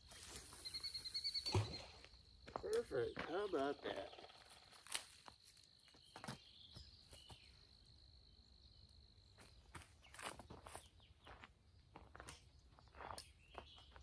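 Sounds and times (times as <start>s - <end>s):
high-pitched insect trill: 0.1s - 9.3s.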